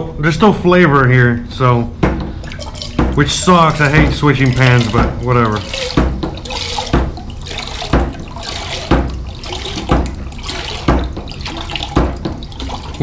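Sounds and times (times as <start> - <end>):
water splashing into a pan: 2.4 - 13.0
hand pump knocking: 2.9 - 13.0.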